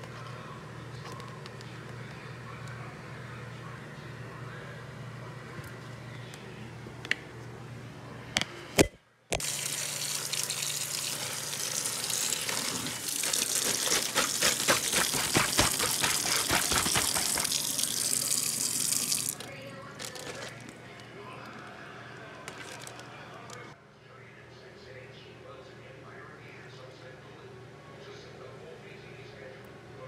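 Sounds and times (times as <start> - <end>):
tap water running into plastic bag: 9.4 - 20.7, 22.4 - 23.6.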